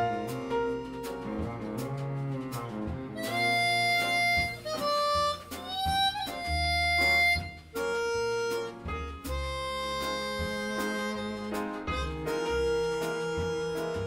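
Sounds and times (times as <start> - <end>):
bowed cello: 0.0 - 7.4, 8.8 - 14.0
double bass: 0.0 - 14.0
drums: 0.0 - 14.0
harmonica playing jazz melody: 0.0 - 14.0.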